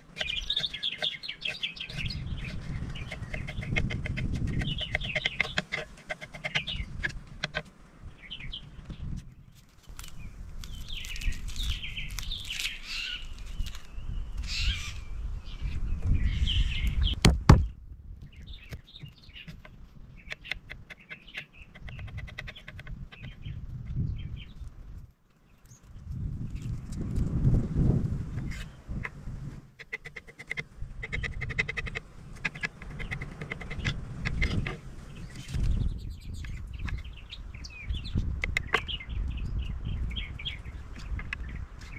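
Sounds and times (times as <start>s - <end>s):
birds chirping and calling: 0.0s - 17.3s, 18.2s - 24.7s, 29.8s - 41.9s.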